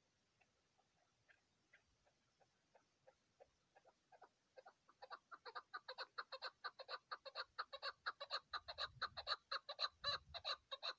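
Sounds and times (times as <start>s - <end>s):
partridge clucking calls: 0.0s - 10.9s.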